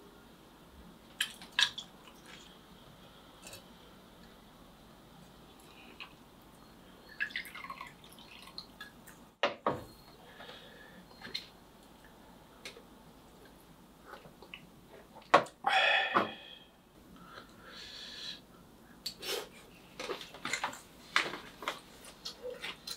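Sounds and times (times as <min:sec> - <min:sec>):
liquid pouring into glass: 0:07.1 - 0:08.7
person exhaling: 0:15.6 - 0:18.4.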